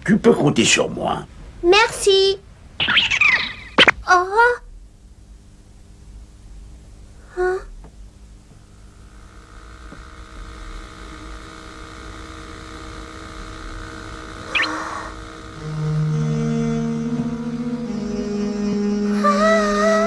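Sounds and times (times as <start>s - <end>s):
drone of held tones: 9.0s - 20.0s
rising chirp: 14.5s - 15.2s.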